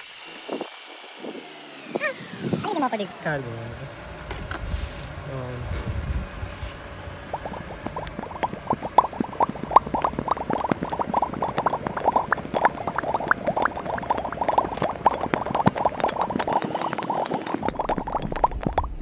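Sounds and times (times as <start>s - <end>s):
foam crackling and fizzing: 7.3s - 19.0s.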